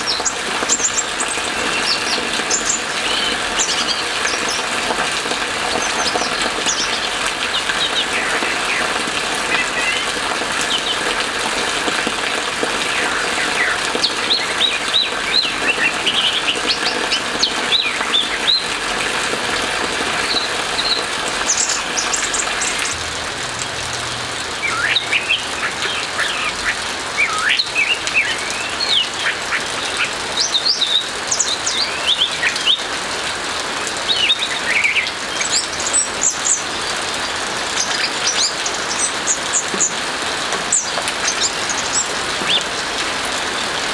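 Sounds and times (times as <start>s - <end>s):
rain hissing: 0.0s - 43.9s
thrush singing: 20.2s - 28.9s.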